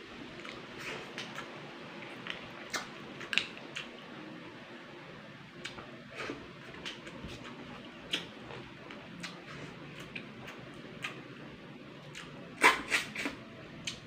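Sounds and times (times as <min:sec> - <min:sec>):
lip smacks and mouth clicks: 0:10.0 - 0:11.2, 0:12.1 - 0:14.0.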